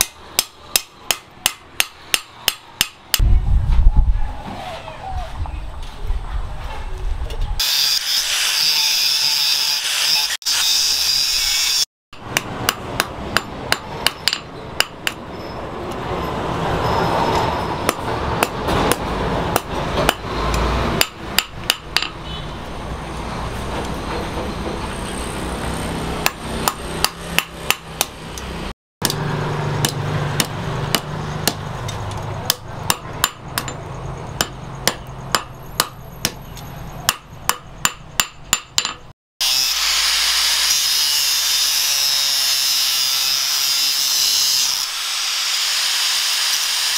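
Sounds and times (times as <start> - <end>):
hammer striking hot steel on anvil: 0.0 - 3.3, 11.6 - 15.2, 17.8 - 20.3, 21.0 - 22.2, 26.2 - 28.4, 29.8 - 39.1
angle grinder running: 39.4 - 46.9.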